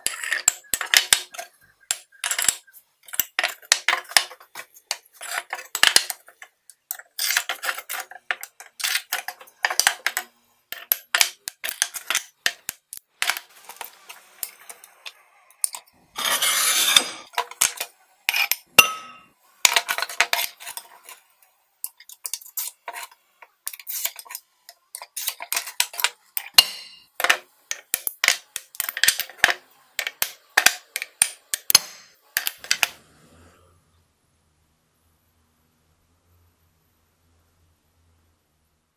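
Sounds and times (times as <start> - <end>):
glass scraping across table: 16.1 - 17.3.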